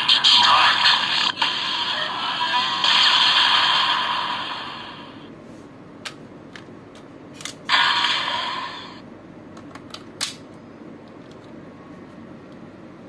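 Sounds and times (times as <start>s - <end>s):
hard plastic clicks and snaps: 9.6s - 10.4s.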